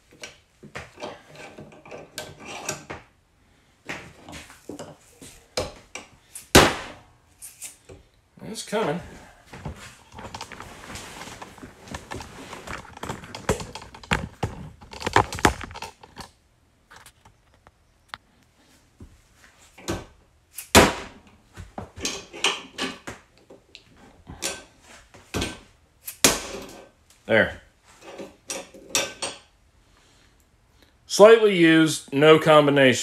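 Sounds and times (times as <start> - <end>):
sharp knocks and metal clanks: 28.0 - 29.5.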